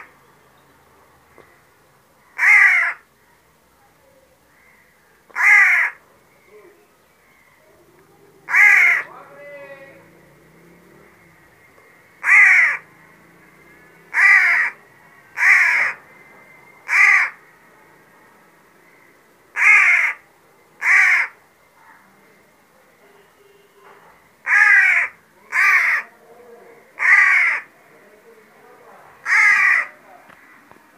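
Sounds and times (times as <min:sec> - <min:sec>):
young crow cawing: 0:02.2 - 0:03.1, 0:04.5 - 0:06.0, 0:08.5 - 0:09.1, 0:12.2 - 0:12.9, 0:14.1 - 0:14.8, 0:15.4 - 0:16.0, 0:16.8 - 0:17.4, 0:18.9 - 0:20.2, 0:20.8 - 0:21.4, 0:24.4 - 0:26.1, 0:27.0 - 0:27.7, 0:29.2 - 0:30.6.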